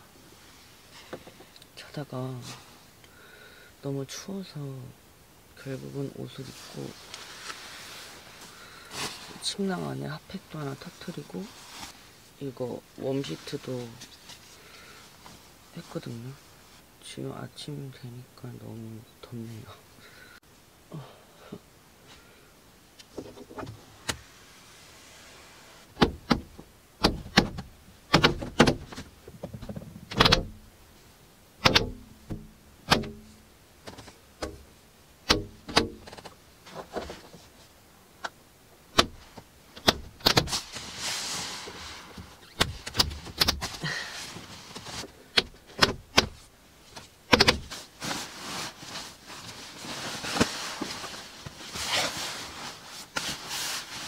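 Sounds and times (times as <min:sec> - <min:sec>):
sleeping bag rustling: 0:06.5 - 0:09.9, 0:10.9 - 0:12.3, 0:47.6 - 0:54.0
clicks and knocks of handling: 0:42.1 - 0:43.8, 0:44.7 - 0:47.7.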